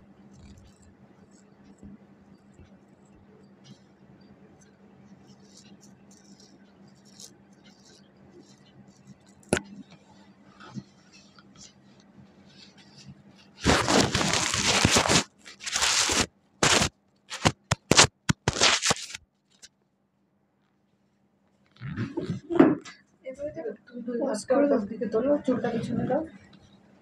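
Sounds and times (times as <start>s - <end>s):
razor scratching on skin: 0.3s - 3.9s, 4.6s - 9.5s, 10.5s - 19.2s
paper tissue rustling: 12.5s - 19.7s.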